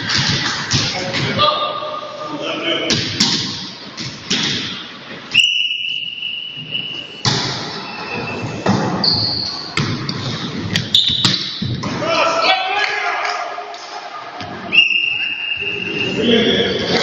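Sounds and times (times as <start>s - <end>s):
gym hall noise: 0.0s - 17.0s
high whistle: 5.3s - 9.7s, 14.7s - 16.3s
high squeaks: 6.3s - 9.8s.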